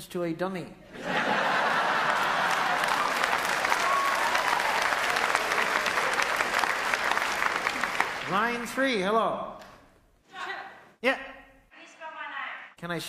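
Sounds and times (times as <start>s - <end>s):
audience laughter: 0.9s - 3.5s
audience applause: 1.0s - 8.7s.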